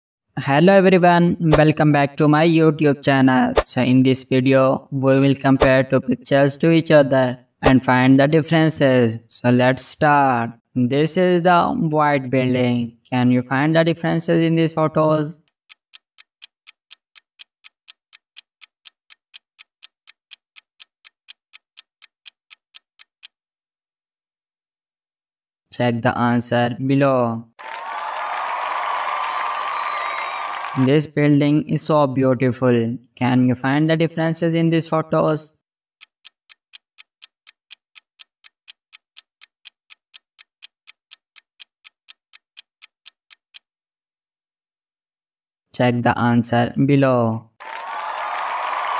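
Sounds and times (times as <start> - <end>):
clock-like ticking: 13.0 - 23.4, 36.0 - 43.7.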